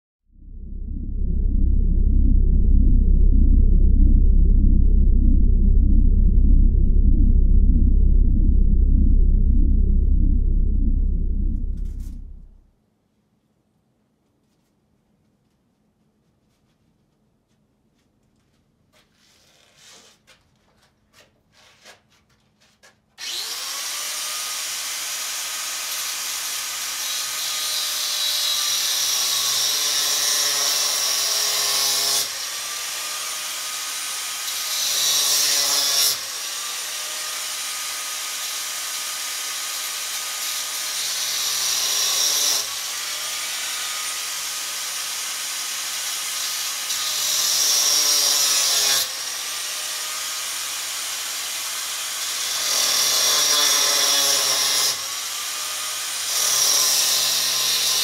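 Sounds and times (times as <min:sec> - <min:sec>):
power cutter cutting metal: 0:23.2 - 0:58.0.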